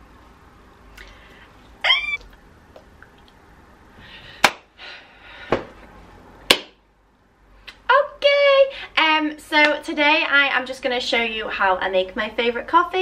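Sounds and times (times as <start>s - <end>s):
woman squealing: 1.8s - 2.3s
sharp slaps: 4.4s - 4.7s, 6.5s - 6.8s.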